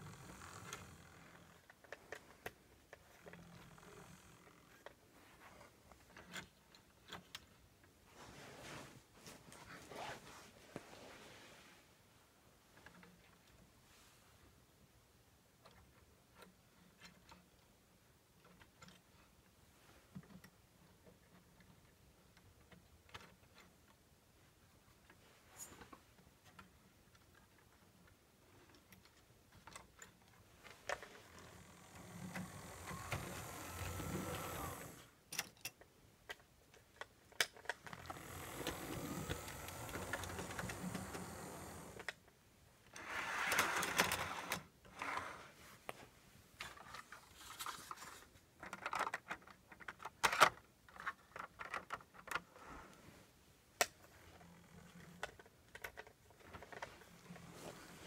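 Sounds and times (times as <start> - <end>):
electric motor whirring: 31.4 - 35.0, 38.0 - 42.0.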